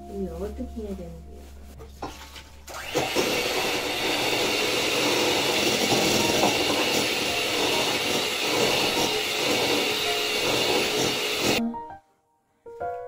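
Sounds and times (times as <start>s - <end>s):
electric mixer whirring: 2.7s - 11.6s.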